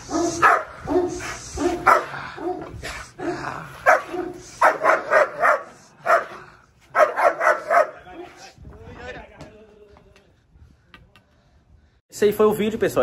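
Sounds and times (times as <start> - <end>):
large dog barking aggressively: 0.0 - 8.0.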